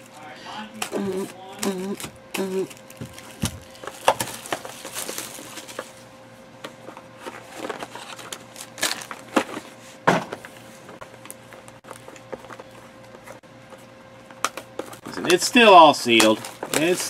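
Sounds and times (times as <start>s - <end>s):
packaging rustling: 2.0s - 6.0s, 7.2s - 9.6s, 14.8s - 17.0s.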